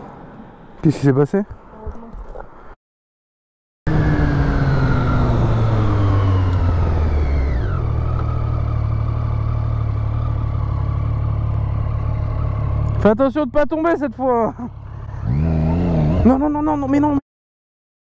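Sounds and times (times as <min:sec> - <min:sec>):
motorcycle engine while riding: 0:03.9 - 0:17.2.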